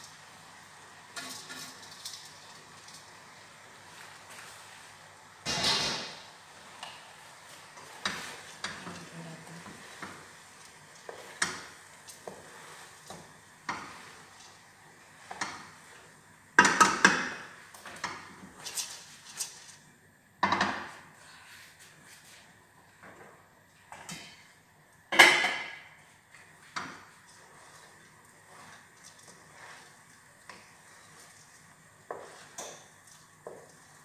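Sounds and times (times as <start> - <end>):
metal pot and utensils clattering: 1.1 - 3.0.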